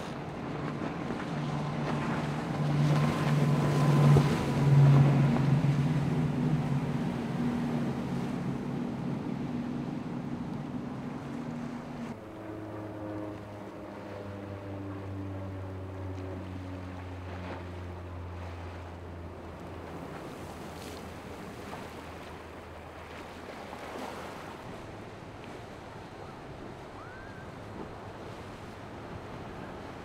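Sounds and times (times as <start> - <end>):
surf: 0.0 - 12.4, 13.0 - 30.0
motorboat engines running: 0.0 - 30.0
wind: 0.0 - 30.0.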